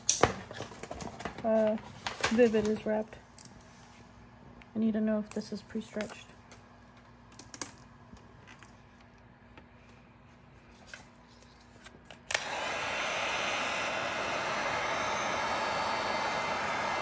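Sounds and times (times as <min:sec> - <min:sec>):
heat gun blowing: 0:12.3 - 0:17.0.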